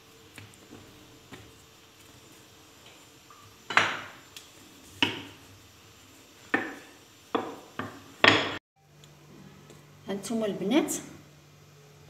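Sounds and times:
rolling pin knocking on countertop: 0:05.0 - 0:05.4, 0:06.5 - 0:08.6.

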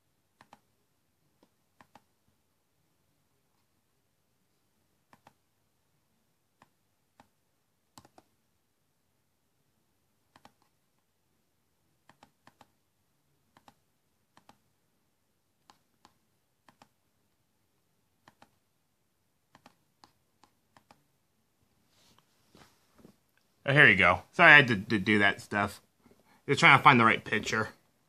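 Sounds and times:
laptop keys and touchpad clicks: 0:08.0 - 0:08.3, 0:10.3 - 0:10.8, 0:12.1 - 0:12.8, 0:19.5 - 0:21.0.

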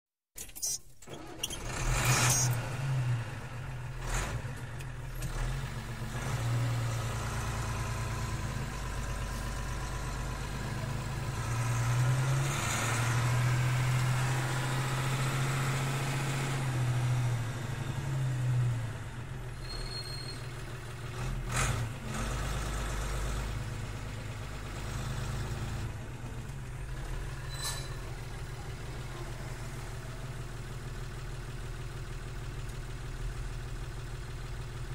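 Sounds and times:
diesel truck engine running: 0:01.0 - 0:34.9.

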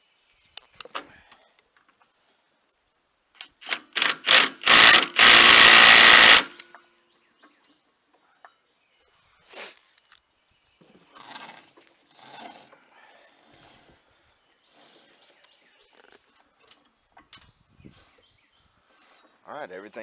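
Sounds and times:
impact gun hammering nut: 0:03.6 - 0:06.6.

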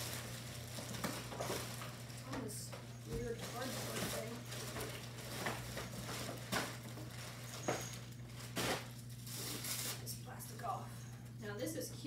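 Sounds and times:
sharp packaging crackles: 0:00.0 - 0:02.6, 0:03.2 - 0:10.1
packaging rustling and crinkling: 0:00.0 - 0:10.1.

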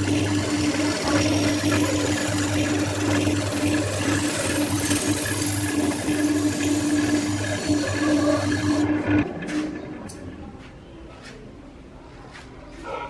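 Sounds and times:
turning tool scraping wood: 0:00.0 - 0:09.8
wood lathe motor hum: 0:00.0 - 0:09.8.

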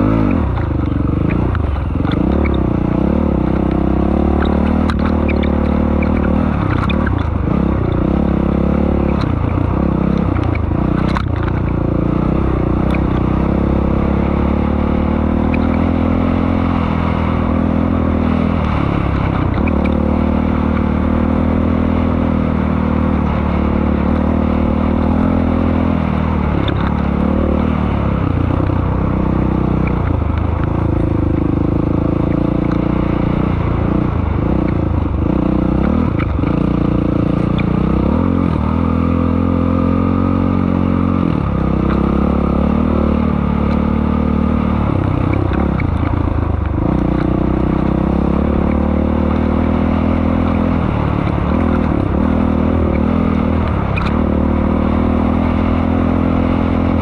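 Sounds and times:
dirt bike engine revving: 0:30.7 - 0:57.0.

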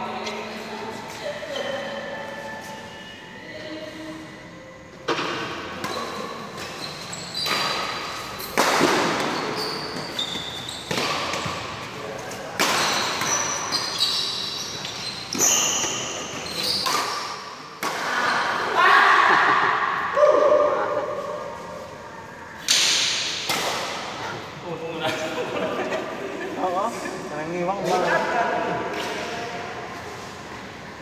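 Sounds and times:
shoes squeaking on court: 0:05.8 - 0:17.5
racket striking shuttlecock: 0:07.4 - 0:09.5, 0:22.6 - 0:24.0.

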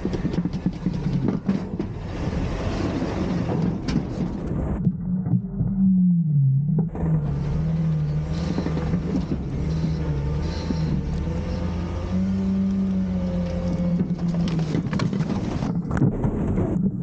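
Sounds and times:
garbage truck engine running: 0:00.0 - 0:05.5, 0:06.5 - 0:17.0
hydraulic whine: 0:05.1 - 0:15.7.

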